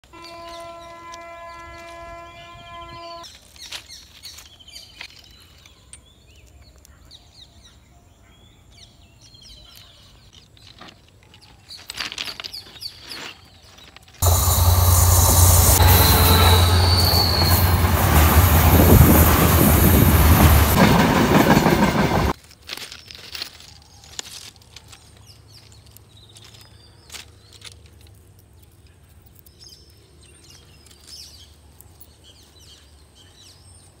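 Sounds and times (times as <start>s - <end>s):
birds chirping: 0.2s - 22.2s.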